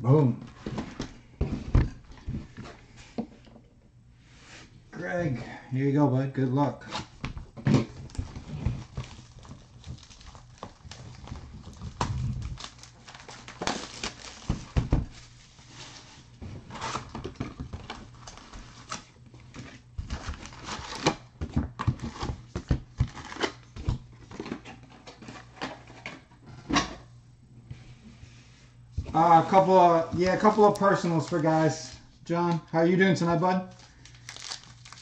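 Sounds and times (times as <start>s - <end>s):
cardboard box rustling and crinkling: 7.8s - 23.6s, 33.7s - 35.0s.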